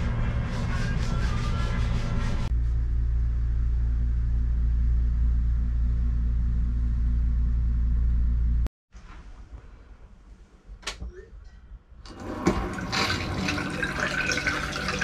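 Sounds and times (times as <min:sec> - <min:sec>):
low rumble: 0:00.0 - 0:08.7.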